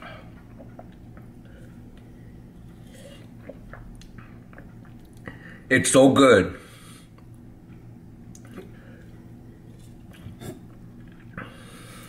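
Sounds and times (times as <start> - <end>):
low room hum: 0.0 - 12.0
swallowing and lip smacking: 0.4 - 2.1, 3.2 - 5.3.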